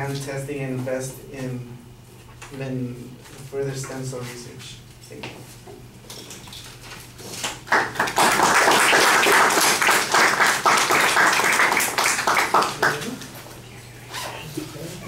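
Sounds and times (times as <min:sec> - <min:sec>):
audience applauding: 0:07.7 - 0:13.3.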